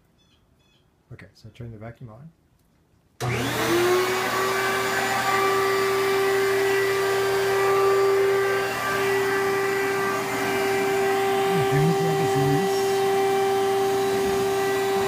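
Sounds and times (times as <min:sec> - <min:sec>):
vacuum cleaner running: 0:03.2 - 0:15.0.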